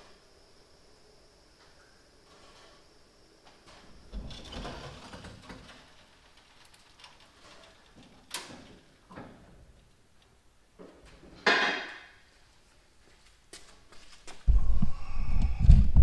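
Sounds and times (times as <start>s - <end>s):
clunks and knocks: 7.4s - 9.8s.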